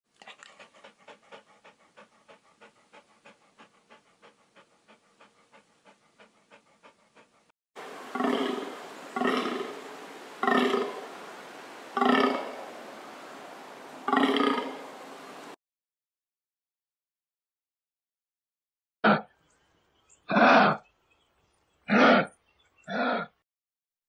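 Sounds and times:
wolf panting: 0.1 - 11.4
reindeer grunting: 0.4 - 11.2, 11.9 - 12.8, 14.0 - 15.0, 20.3 - 20.9, 21.9 - 23.4.

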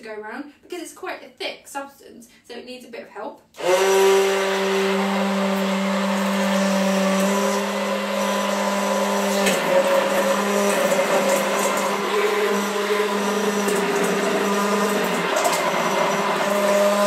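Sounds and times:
blender motor running: 3.6 - 17.0.

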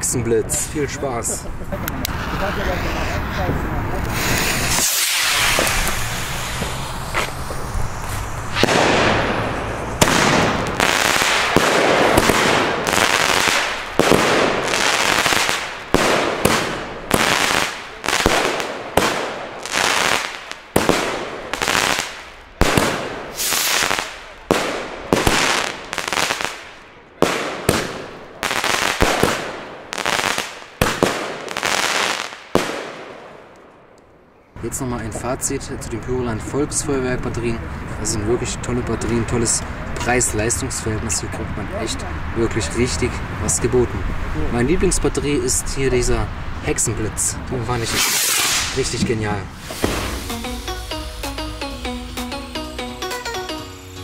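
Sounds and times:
firework fuse hissing: 2.1 - 3.2, 4.0 - 21.0, 21.6 - 24.4, 47.8 - 48.9, 49.5 - 51.5
firework shots: 4.0 - 34.0, 47.7 - 50.7.

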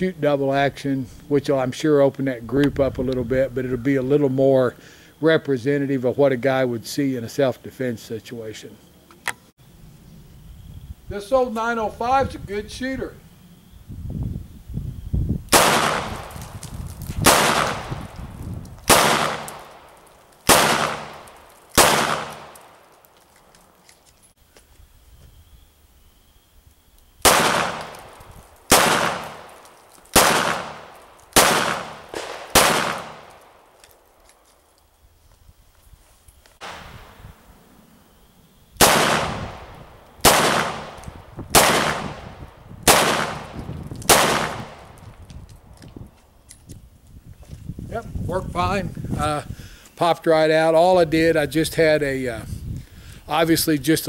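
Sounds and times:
revolver gunshots with ringing: 15.5 - 16.4, 17.2 - 18.2, 18.9 - 22.8, 27.2 - 33.7, 36.6 - 37.2, 38.8 - 45.0.

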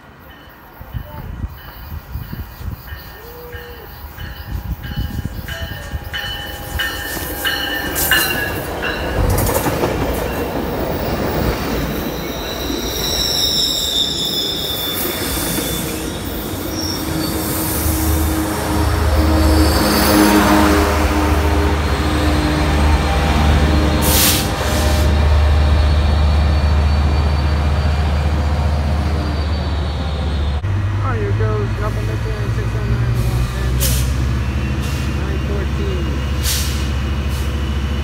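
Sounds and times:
diesel locomotive drone: 0.0 - 38.0
train passing: 0.0 - 38.0
train wheels squealing: 0.2 - 9.3, 10.4 - 18.3, 23.9 - 30.6, 34.4 - 38.0.

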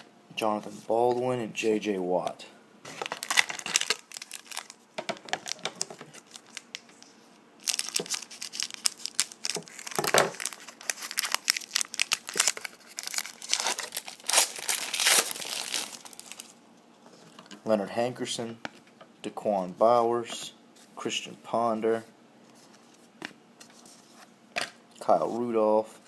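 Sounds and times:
wrapper crinkling and tearing: 2.9 - 7.0, 7.6 - 16.6
cards rustling: 2.9 - 16.6.

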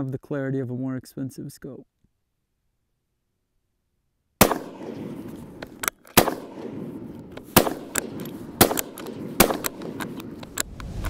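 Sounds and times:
rifle gunshots: 4.4 - 10.6.

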